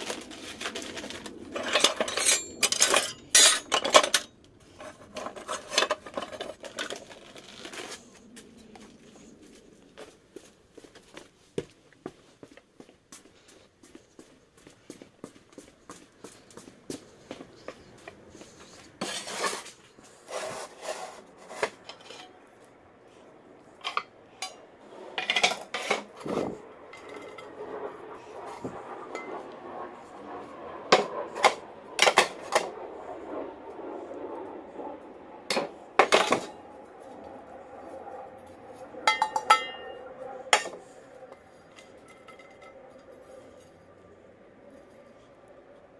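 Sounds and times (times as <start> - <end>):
metallic ring: 2.0 - 4.3, 39.1 - 40.0
pans scraping: 19.0 - 22.4
metal pans clanking: 39.1 - 40.0.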